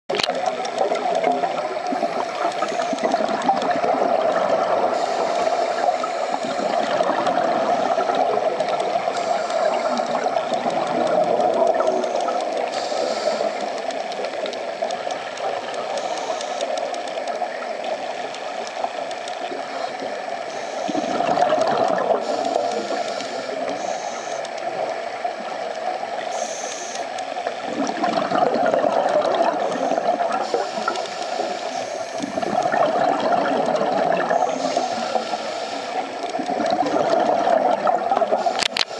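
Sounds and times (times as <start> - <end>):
underwater bubbling and gurgling: 0.1 - 38.9
regulator breathing: 4.9 - 17.3, 19.7 - 21.3, 22.2 - 24.6, 26.3 - 27.2, 29.7 - 32.7, 34.4 - 36.5.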